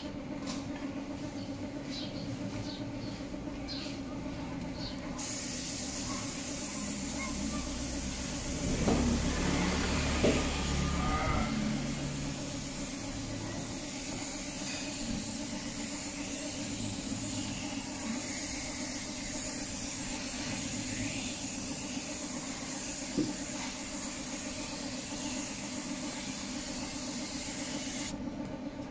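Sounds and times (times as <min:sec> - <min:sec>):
spray gun hissing: 0:05.2 - 0:28.2
low hum: 0:07.3 - 0:28.9.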